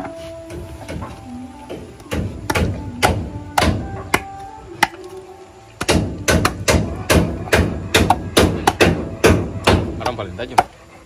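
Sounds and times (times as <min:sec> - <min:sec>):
machete chopping meat on wood: 0:02.1 - 0:05.0, 0:05.8 - 0:10.7.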